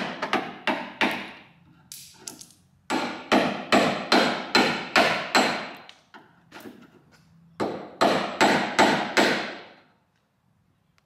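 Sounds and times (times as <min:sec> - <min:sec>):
hammer striking chisel on metal: 0:00.0 - 0:01.4, 0:02.9 - 0:05.9, 0:07.6 - 0:09.7.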